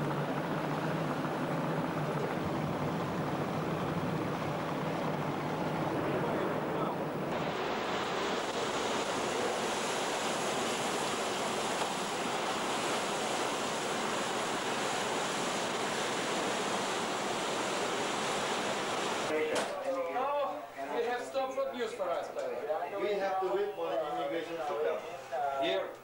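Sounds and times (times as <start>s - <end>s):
churning sea water: 0.0s - 19.3s
wind: 0.0s - 20.9s.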